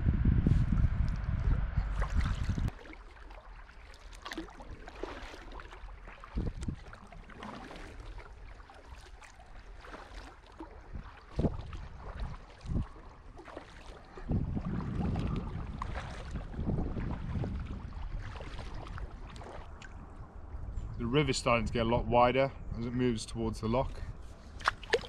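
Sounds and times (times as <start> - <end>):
low rumble: 0.0 - 2.9, 14.2 - 22.9
paddle splashing in water: 1.9 - 20.2, 24.4 - 25.0.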